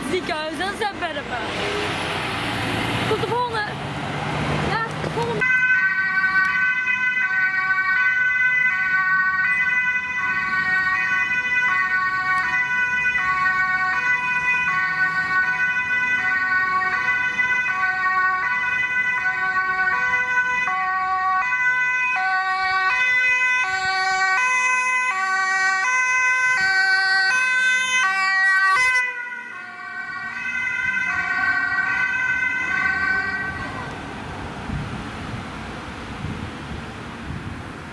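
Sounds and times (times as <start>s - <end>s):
ambulance two-tone siren: 5.3s - 34.0s.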